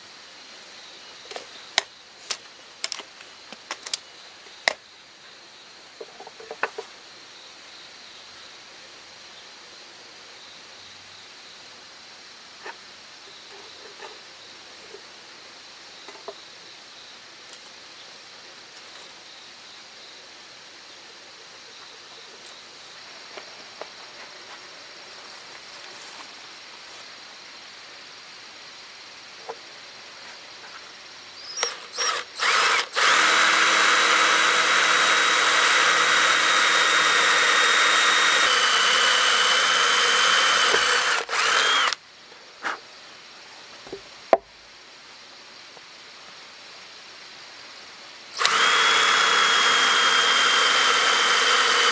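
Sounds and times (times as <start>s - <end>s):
cordless drill boring wood: 31.5s - 42.0s, 48.4s - 51.9s.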